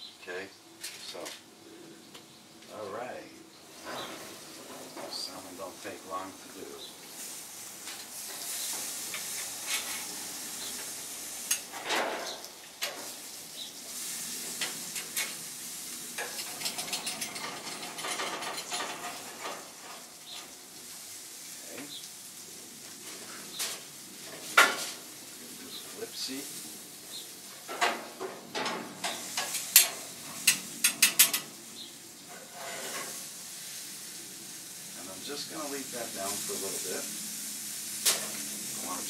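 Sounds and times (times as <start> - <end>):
fish sizzling on a grill: 2.0 - 39.0
metal spatula scraping grates: 32.3 - 33.2.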